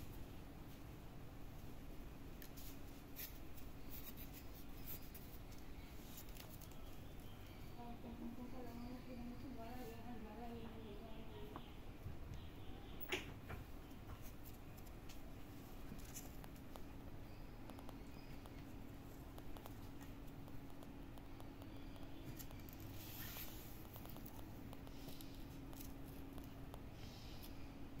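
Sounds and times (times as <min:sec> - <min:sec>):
kitten claws scratching: 0:02.4 - 0:07.3, 0:14.0 - 0:27.7.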